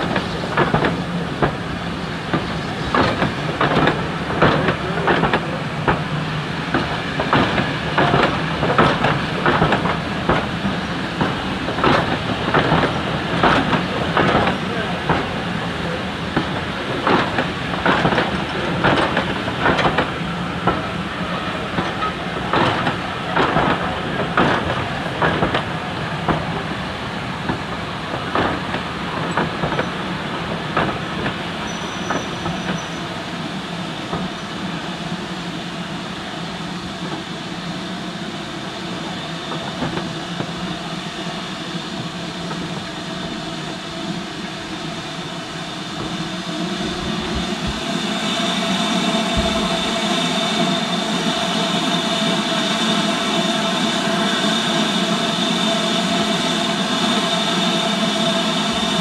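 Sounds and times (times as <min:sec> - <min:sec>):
train wheels clicking on rail joints: 0:00.0 - 0:34.9, 0:39.5 - 0:40.8
steam hissing: 0:28.3 - 0:59.0.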